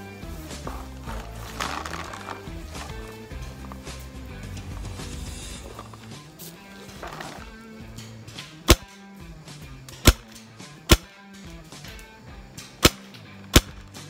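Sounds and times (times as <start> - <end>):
background music with low notes: 0.0 - 14.0
paintball marker pops: 8.6 - 8.9, 10.0 - 10.3, 10.9 - 11.1, 12.8 - 14.0.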